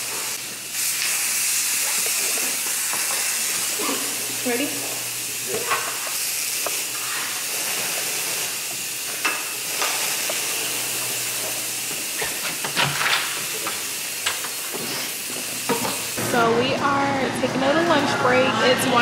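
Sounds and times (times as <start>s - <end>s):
insect fogger hissing: 0.0s - 16.2s.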